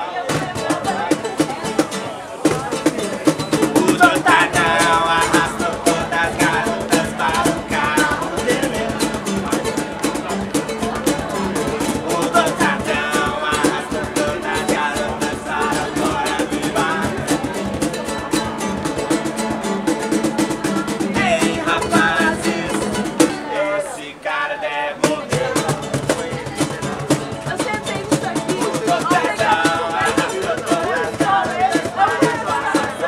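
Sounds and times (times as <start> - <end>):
strummed ukulele: 0.0 - 33.0
percussion: 0.2 - 24.0, 25.0 - 33.0
person singing: 2.5 - 10.4, 11.2 - 18.3, 20.9 - 25.9, 27.8 - 33.0.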